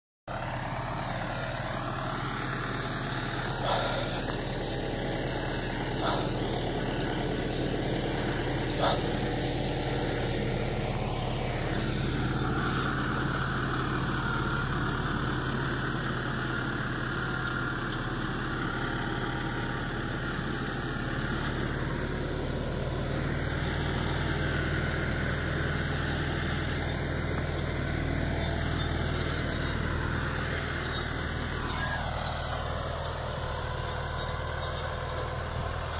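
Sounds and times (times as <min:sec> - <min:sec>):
tractor engine running: 0:00.3 - 0:35.9
sprayer hissing: 0:00.6 - 0:14.5.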